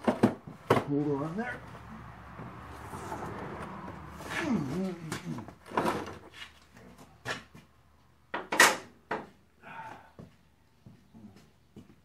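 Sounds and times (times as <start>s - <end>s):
knocks and scuffs: 6.2s - 7.8s, 9.2s - 12.0s.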